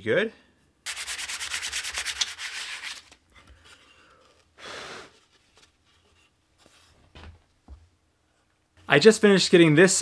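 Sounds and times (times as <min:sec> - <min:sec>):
sandpaper rubbing on wood: 0:00.9 - 0:03.0.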